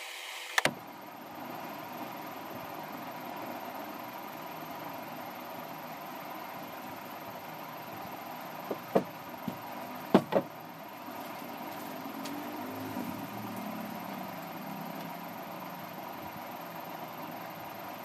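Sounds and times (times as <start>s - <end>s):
steady background hiss: 0.0s - 18.0s
wooden knocks of cricket bat: 8.7s - 10.5s.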